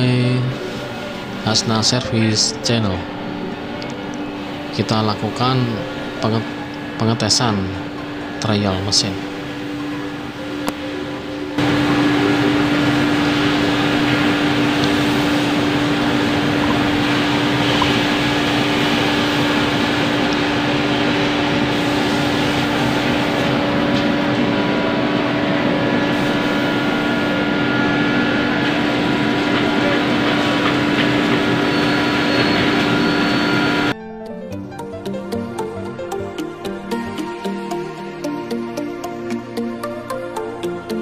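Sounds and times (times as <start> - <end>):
constant motor tone: 0.0 - 34.0
dust collector fan rushing air: 0.0 - 34.0.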